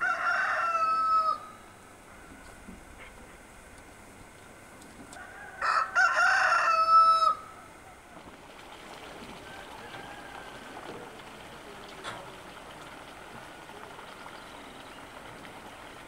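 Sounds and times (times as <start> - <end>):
rooster crowing: 0.0 - 1.7, 5.1 - 7.8, 9.4 - 11.2.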